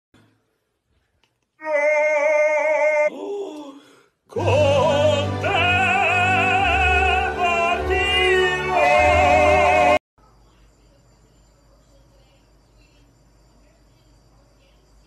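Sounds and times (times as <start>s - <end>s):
man singing opera: 4.3s - 10.0s
orchestral backing: 4.4s - 10.0s.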